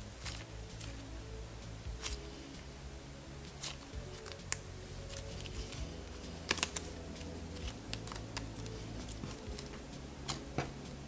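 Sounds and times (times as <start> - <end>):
slime clicking and crackling: 0.0 - 1.1, 1.9 - 2.4, 3.4 - 10.8.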